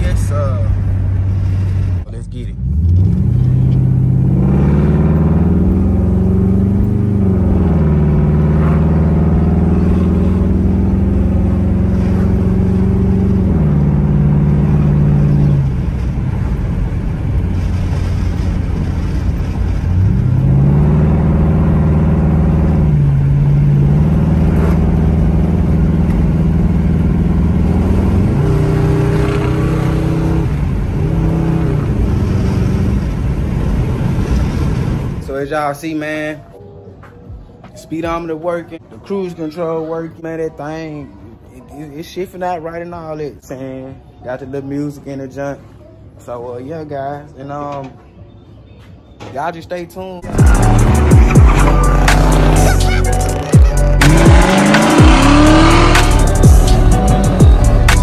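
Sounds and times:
car engine accelerating: 0:00.0 - 0:35.2, 0:50.2 - 0:58.0.

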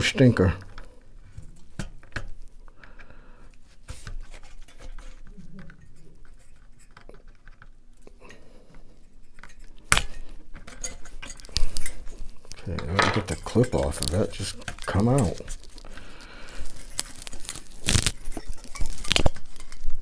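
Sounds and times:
tool clicking and scraping on clip: 0:09.3 - 0:15.7.

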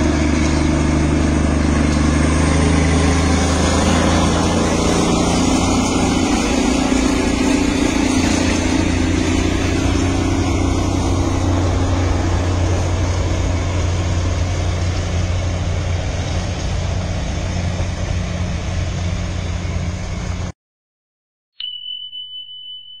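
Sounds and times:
vehicle engine hum: 0:00.0 - 0:20.5
high beep: 0:21.6 - 0:23.0.

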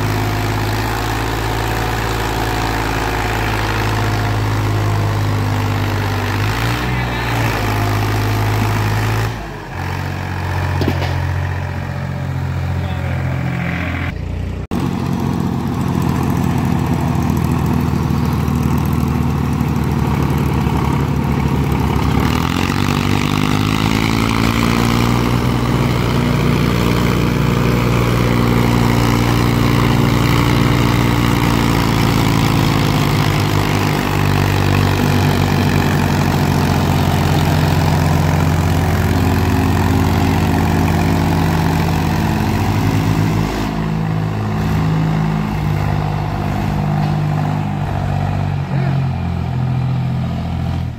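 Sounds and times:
tractor diesel engine under load: 0:00.0 - 0:50.9.

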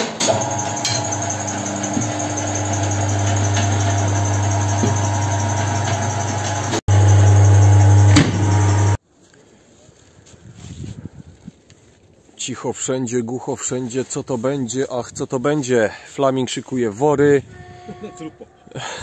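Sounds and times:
electric motor humming: 0:00.3 - 0:09.0.

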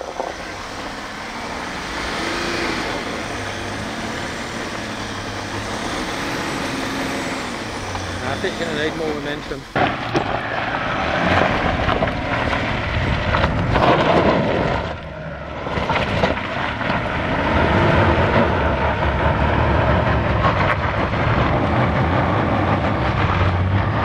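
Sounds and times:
engine working under load: 0:00.0 - 0:24.0
gravel clicks: 0:07.9 - 0:19.1.

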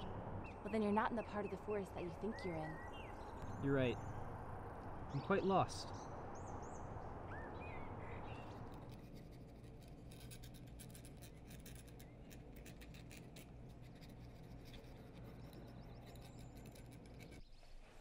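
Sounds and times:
quill pen scratching paper: 0:08.6 - 0:17.4.

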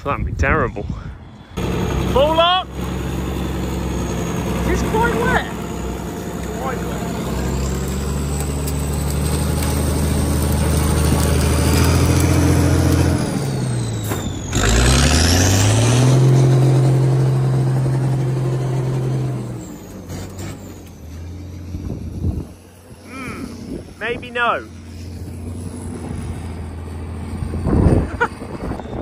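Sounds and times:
diesel engine under load: 0:01.1 - 0:29.0.

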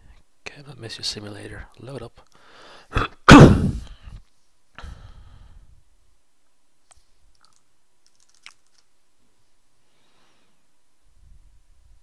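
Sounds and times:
loud noise bursts on microphone: 0:03.0 - 0:03.9.

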